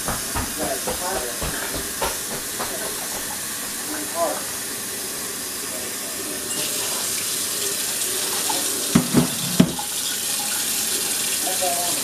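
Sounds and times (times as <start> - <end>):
quick knocks: 0.0 - 3.4
tap running into sink: 0.0 - 4.5, 8.2 - 11.3.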